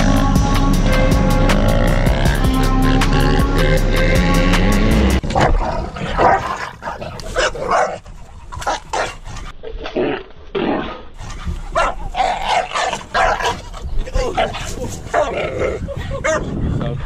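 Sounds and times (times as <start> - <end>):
dog barking: 7.4 - 8.0, 11.7 - 13.7.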